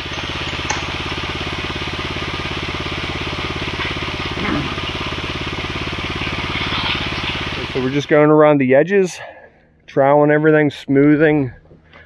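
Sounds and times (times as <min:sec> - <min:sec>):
engine running with pulsing beat: 0:00.0 - 0:08.2.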